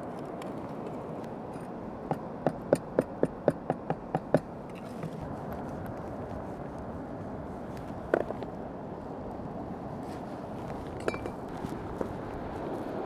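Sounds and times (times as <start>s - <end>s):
wind: 0.0s - 13.0s.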